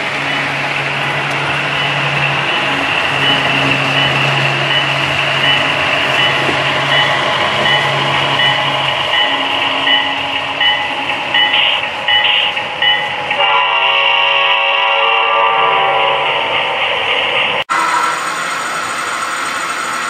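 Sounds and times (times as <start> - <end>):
wheels rolling on track: 0.0 - 13.4, 17.4 - 20.0
model locomotive engine hum: 0.0 - 20.0
repeating high tone: 3.0 - 13.3.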